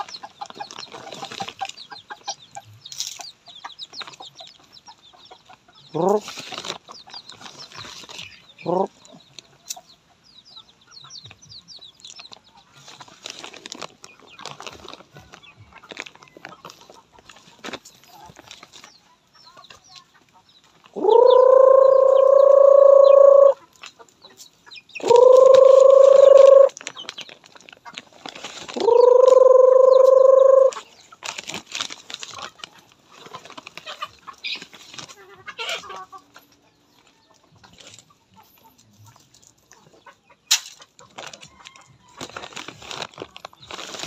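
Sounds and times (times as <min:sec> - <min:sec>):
chickens clucking: 0:00.0 - 0:44.0
person calling chickens: 0:05.8 - 0:06.5, 0:08.5 - 0:09.6, 0:18.1 - 0:23.8, 0:25.0 - 0:26.8, 0:28.8 - 0:31.0.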